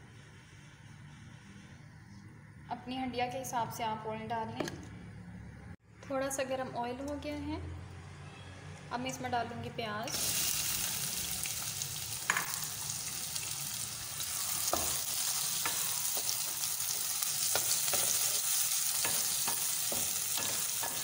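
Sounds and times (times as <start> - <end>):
onions sizzling in oil: 10.1 - 21.0.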